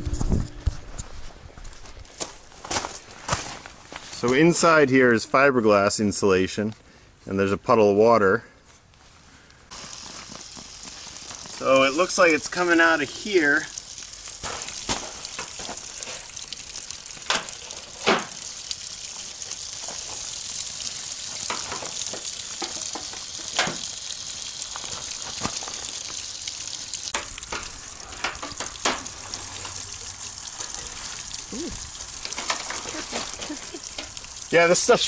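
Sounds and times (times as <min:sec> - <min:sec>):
steady hiss: 0:09.7 - 0:35.0.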